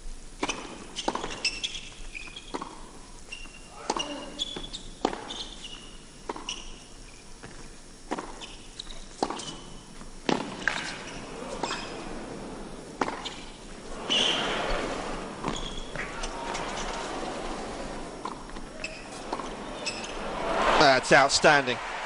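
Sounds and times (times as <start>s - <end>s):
shoes squeaking on court: 0.4s - 20.2s
crowd noise: 13.9s - 22.0s
racket hitting tennis ball: 15.4s - 20.8s.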